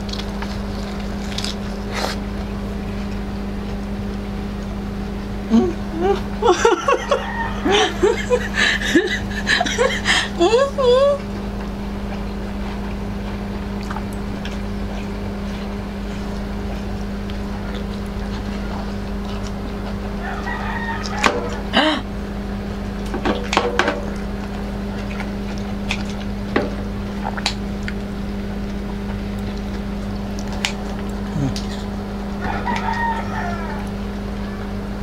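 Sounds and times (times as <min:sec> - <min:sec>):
steady low hum: 0:00.0 - 0:35.0
rooster crowing: 0:06.4 - 0:10.2, 0:20.1 - 0:22.0, 0:32.4 - 0:35.0.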